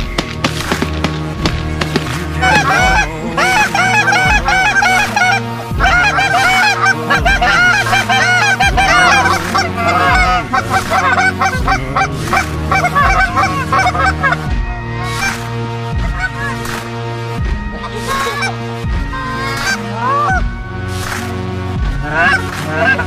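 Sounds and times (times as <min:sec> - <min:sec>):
music with slow low beat: 0:00.0 - 0:23.0
geese honking: 0:00.7 - 0:23.0
goose call blown: 0:02.4 - 0:15.4, 0:17.8 - 0:20.6.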